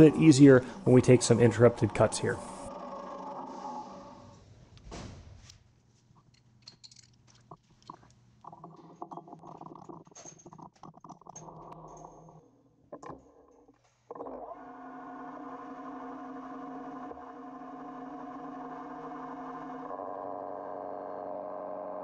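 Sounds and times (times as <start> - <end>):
lathe spinning hum: 0.0 - 4.4, 14.4 - 22.0
metal clinks and knocks: 6.2 - 8.1.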